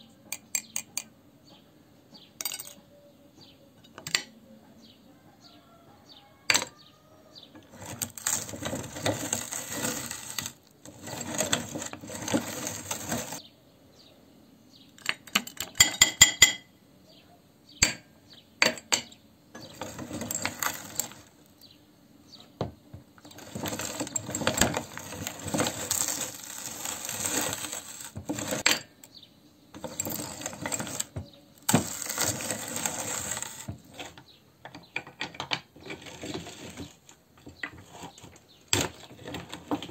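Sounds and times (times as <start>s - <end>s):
hard candy clinking against metal: 2.4s - 2.8s, 7.7s - 13.4s, 19.6s - 21.3s, 23.3s - 29.2s, 29.8s - 34.0s
meat grinder crunching candy: 7.6s - 13.4s, 19.6s - 21.4s, 23.3s - 28.7s, 29.8s - 34.1s.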